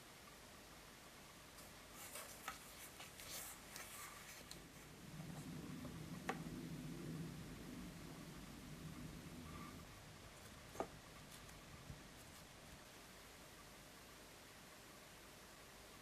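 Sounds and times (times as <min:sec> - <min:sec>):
low hum: 0:04.2 - 0:13.4.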